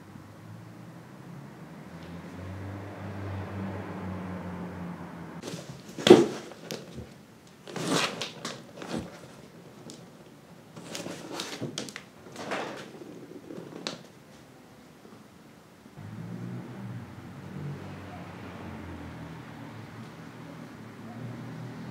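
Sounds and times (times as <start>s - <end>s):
cats scuffling on cardboard: 5.4s - 14.1s.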